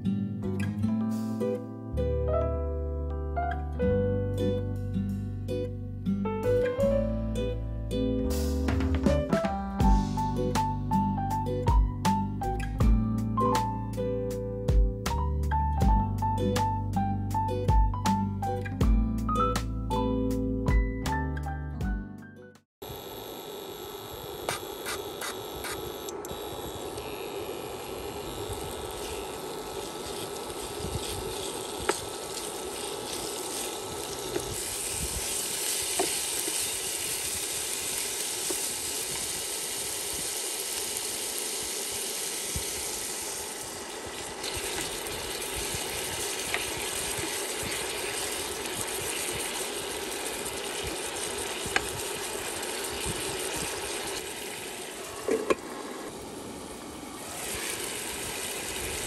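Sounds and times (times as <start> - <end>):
chicken sizzling in oil: 26.4 - 59.0.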